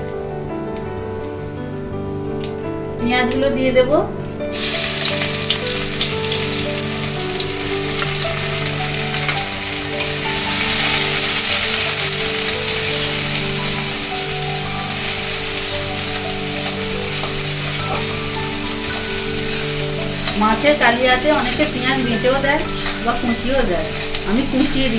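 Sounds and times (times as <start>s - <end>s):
onions sizzling in oil: 4.5s - 24.9s
metal spatula scraping a pan: 21.6s - 24.3s.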